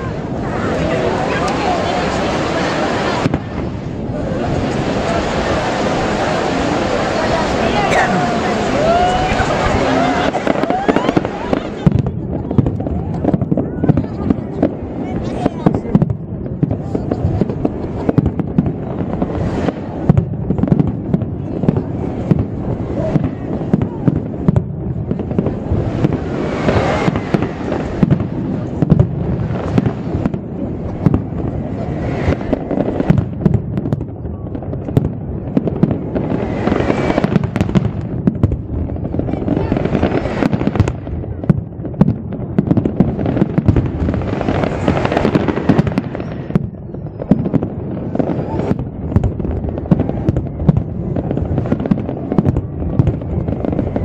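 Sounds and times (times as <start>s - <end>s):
fireworks bangs: 0.0s - 54.0s.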